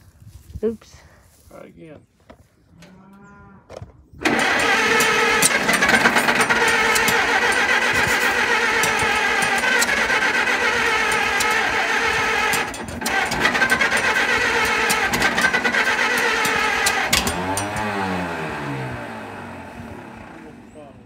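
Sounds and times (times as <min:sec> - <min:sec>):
engine starter cranking: 0:04.2 - 0:20.8.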